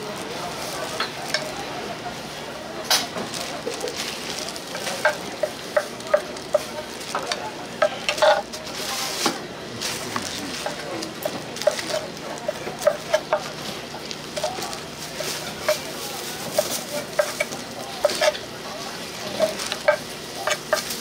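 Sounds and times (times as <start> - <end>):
metal spatulas scraping and clinking: 8.0 - 8.5, 11.6 - 13.4, 15.2 - 18.5, 19.2 - 21.0.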